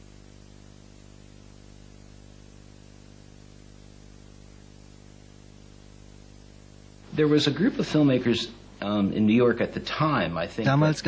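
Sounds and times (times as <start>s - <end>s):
electrical mains hum: 0.0s - 11.0s
faint hiss: 0.0s - 11.0s.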